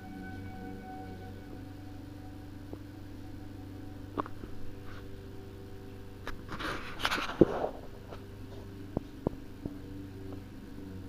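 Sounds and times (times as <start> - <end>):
higher steady tone: 0.0 - 11.0
steady low hum: 0.0 - 11.0
rustling: 4.1 - 9.4.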